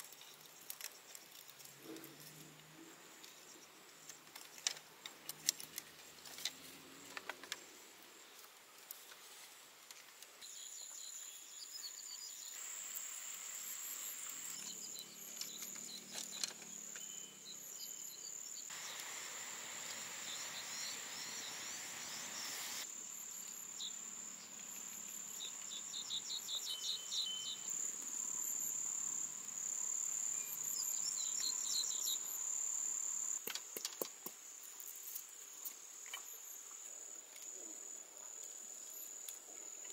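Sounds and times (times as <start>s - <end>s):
insects trilling: 10.4s - 39.9s.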